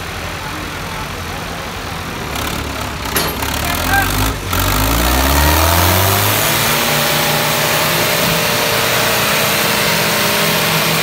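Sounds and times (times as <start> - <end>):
tractor diesel engine revving: 0.0 - 11.0.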